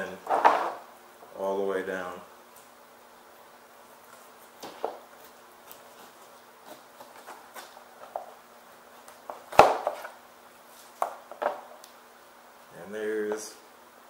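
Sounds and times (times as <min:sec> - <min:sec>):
knife slicing and scraping fish: 0:05.7 - 0:07.8.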